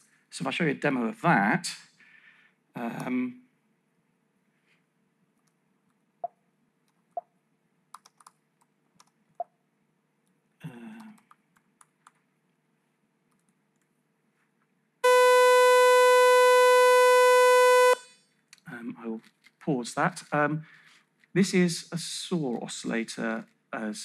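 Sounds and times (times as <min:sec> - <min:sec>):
laptop keystrokes and clicks: 0:07.9 - 0:09.5
loud steady synthesized tone: 0:15.0 - 0:18.0.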